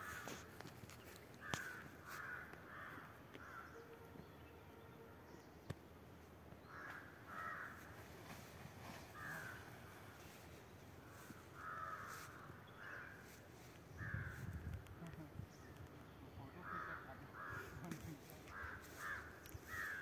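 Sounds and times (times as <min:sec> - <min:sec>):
crow cawing: 0:00.0 - 0:00.5, 0:01.4 - 0:03.9, 0:06.6 - 0:08.0, 0:09.1 - 0:10.4, 0:11.0 - 0:14.7, 0:16.5 - 0:20.0.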